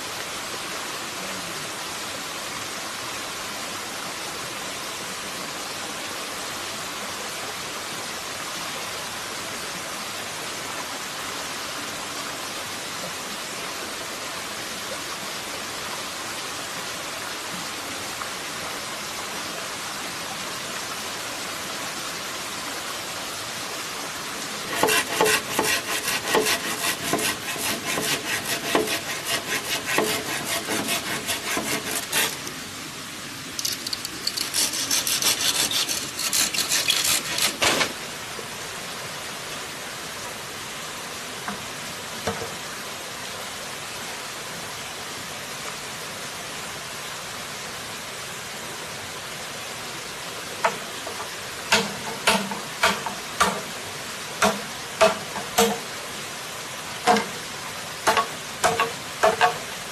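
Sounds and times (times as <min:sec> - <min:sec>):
background hiss: 0:00.0 - 0:59.9
blade striking bamboo: 0:24.7 - 0:32.5, 0:34.4 - 0:38.0, 0:51.7 - 0:53.7, 0:54.4 - 0:55.9, 0:57.1 - 0:57.4, 0:58.0 - 0:59.7
knife scraping bamboo: 0:24.7 - 0:32.6, 0:33.6 - 0:38.0, 0:50.6 - 0:53.6, 0:54.4 - 0:55.8, 0:57.1 - 0:57.4, 0:58.1 - 0:59.6.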